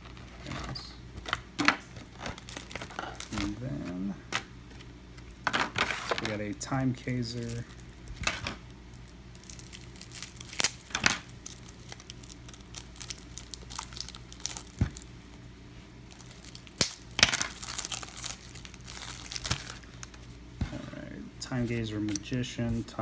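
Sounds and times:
card packaging crinkling: 0.0 - 4.1, 5.6 - 15.4, 16.0 - 20.4.

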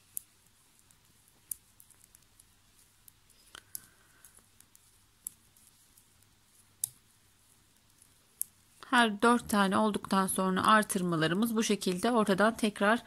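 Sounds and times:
knitting needles clicking: 0.0 - 12.8.

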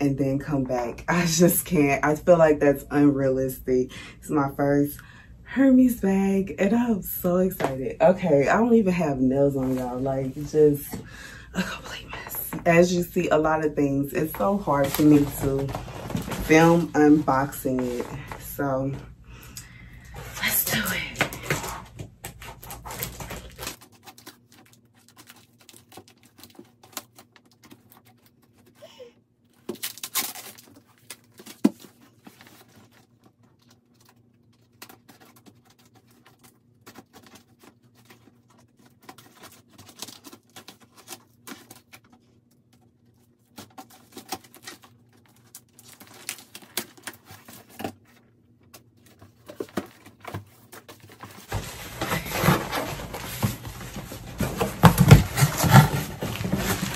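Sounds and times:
cardboard box handled: 49.2 - 56.9.

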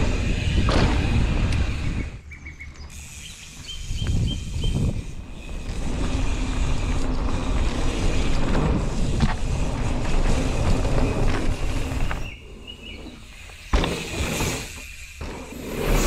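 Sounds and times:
wind buffeting microphone: 0.0 - 2.3, 3.6 - 12.4
bike tyres rumbling on dirt: 0.0 - 16.0
bike knocks: 0.6 - 1.2, 13.5 - 14.6
bird chirping: 1.8 - 5.0, 11.0 - 14.0.

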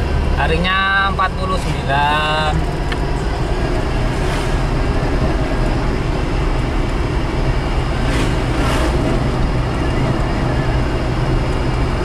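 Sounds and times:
car engine drone from cabin: 0.0 - 12.0
passing vehicle whoosh: 3.2 - 12.0.

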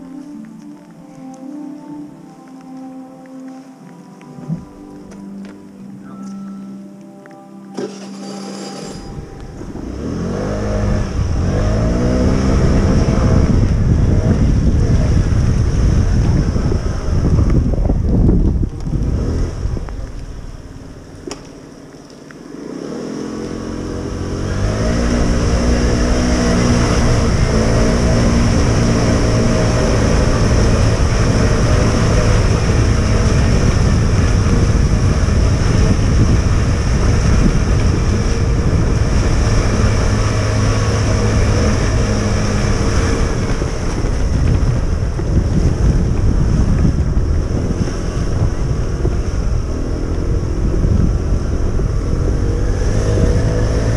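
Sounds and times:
rising humming tone: 0.0 - 53.9
wheels rumbling over cobblestones: 0.0 - 53.9
wind buffeting microphone: 9.0 - 21.3, 23.5 - 53.9.

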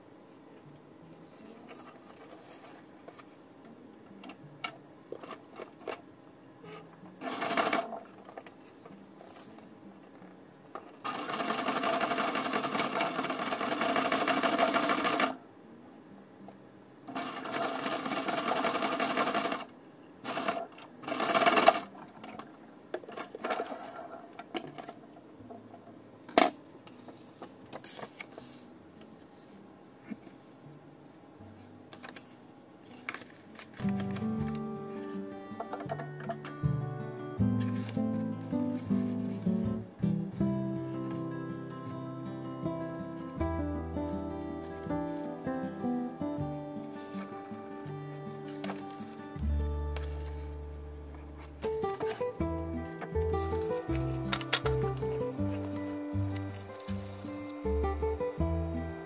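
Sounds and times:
sewing machine stitching: 7.2 - 8.2, 11.0 - 15.4, 17.1 - 22.0
paper handling: 26.9 - 29.4, 31.9 - 35.1, 37.5 - 39.5, 48.3 - 49.3, 49.9 - 58.1.

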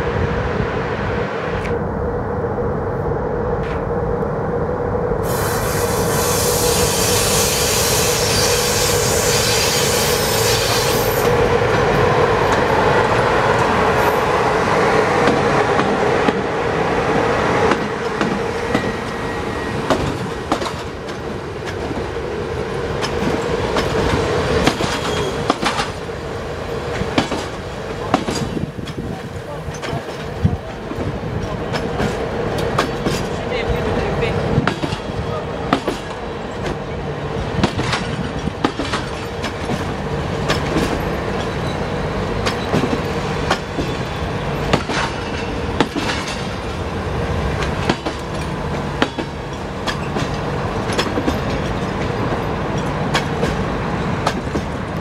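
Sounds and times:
electric locomotive humming: 0.0 - 55.0
train wheels clicking over rail joints: 19.8 - 22.2, 22.8 - 26.1, 26.9 - 33.4, 34.6 - 46.8, 47.5 - 55.0.

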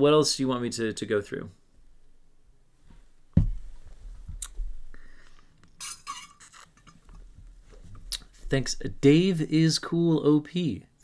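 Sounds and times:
sharp thump: 3.4 - 3.6
rustling at a desk: 6.5 - 8.7.

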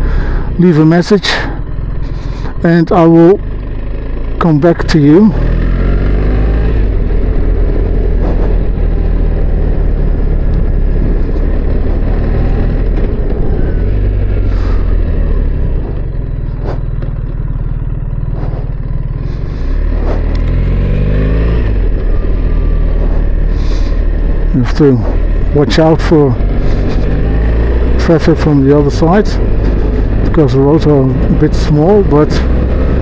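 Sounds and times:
motorcycle engine running: 0.0 - 33.0
wind noise: 6.9 - 17.1.

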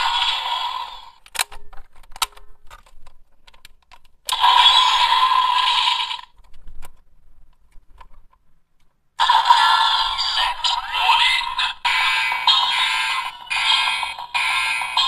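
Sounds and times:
toy electronic sound effect: 0.0 - 1.2, 4.3 - 6.3, 9.2 - 15.0.

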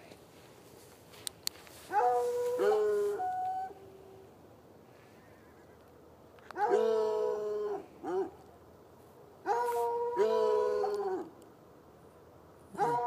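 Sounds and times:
hound barking: 6.6 - 7.0, 9.4 - 11.3, 12.7 - 13.0
hound baying: 12.8 - 13.0.

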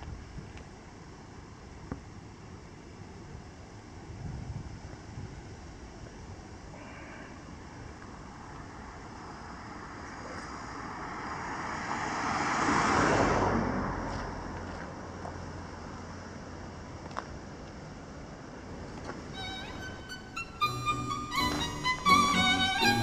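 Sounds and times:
car passing by: 9.4 - 15.8.

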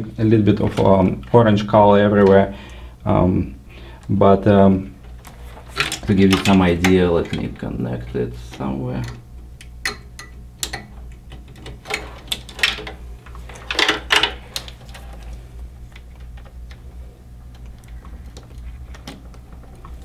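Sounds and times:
steady low hum: 0.0 - 20.0
cables and plastic connectors rattling: 4.0 - 9.3, 10.6 - 20.0.

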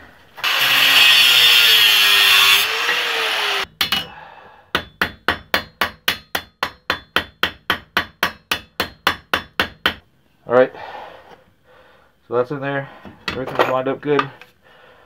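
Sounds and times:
angle grinder cutting metal: 0.4 - 3.7
hammer striking metal on anvil: 4.7 - 10.0.

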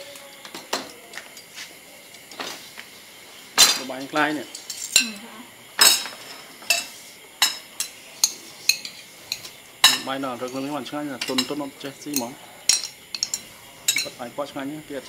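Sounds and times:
cutlery clinking on ceramic dishes: 5.8 - 14.2.

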